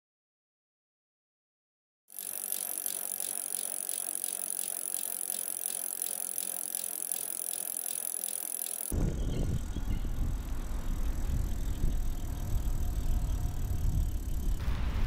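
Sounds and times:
bicycle rattling tick: 2.1 - 14.6.

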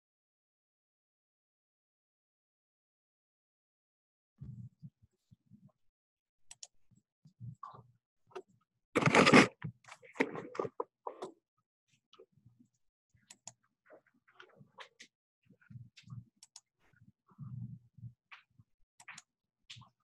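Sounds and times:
handling clicks and rustles: 9.0 - 10.8.

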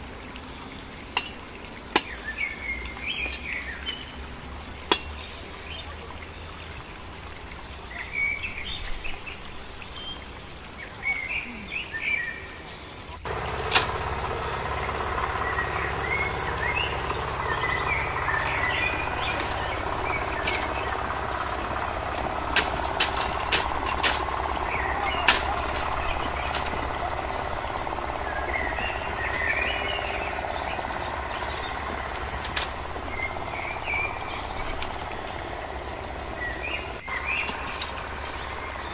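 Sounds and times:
high insect drone: 0.0 - 38.9
machete chopping bamboo: 2.0 - 2.2, 4.9 - 5.2, 22.6 - 24.3, 25.2 - 25.8
birds chirping: 7.8 - 38.9.

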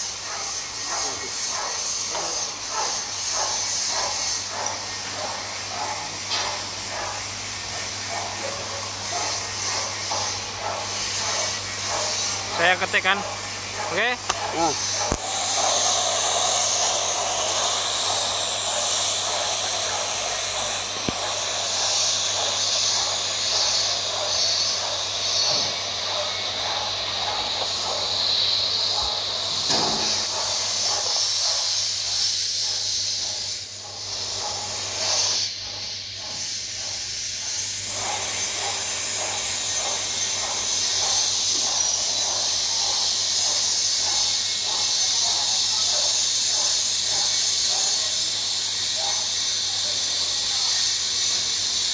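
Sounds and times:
welding arc hissing: 0.0 - 51.9.

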